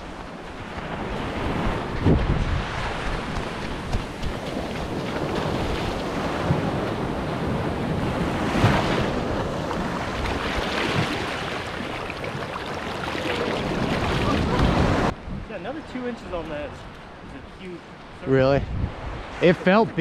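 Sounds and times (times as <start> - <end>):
surf washing over sand: 0.0 - 20.0
wind hitting microphone: 0.8 - 12.4, 18.3 - 19.9.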